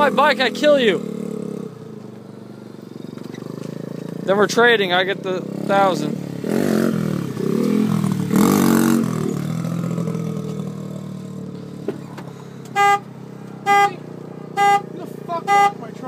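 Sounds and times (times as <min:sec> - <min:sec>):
motorbike engine revving: 0:00.0 - 0:16.0
vehicle horn beeps: 0:12.7 - 0:16.0.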